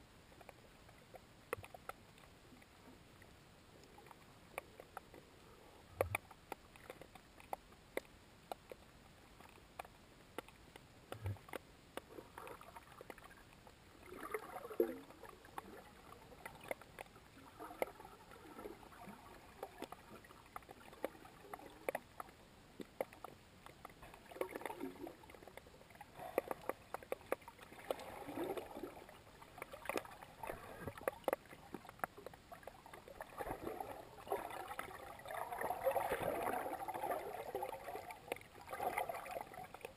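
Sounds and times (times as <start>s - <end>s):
underwater clicks and crackles: 0.0s - 39.9s
gurgling water surges: 11.0s - 39.9s.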